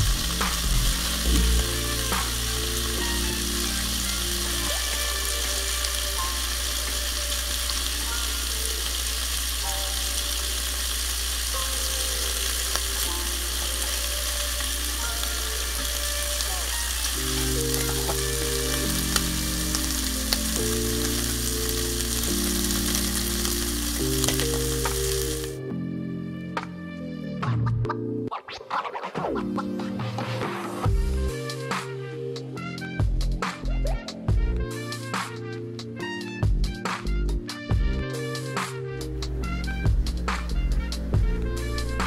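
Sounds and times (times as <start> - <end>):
shrimp sizzling in oil: 0.0 - 25.6, 39.2 - 42.0
soft background music: 0.0 - 28.4, 29.0 - 42.0.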